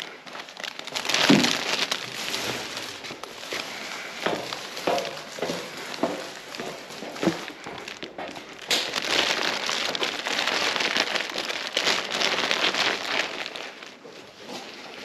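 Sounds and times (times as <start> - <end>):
plastic wrapping crinkling: 0.0 - 15.0.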